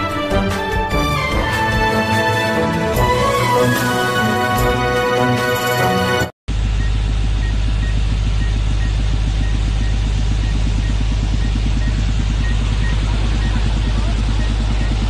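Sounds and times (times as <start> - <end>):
drone rotors buzzing: 6.5 - 15.0.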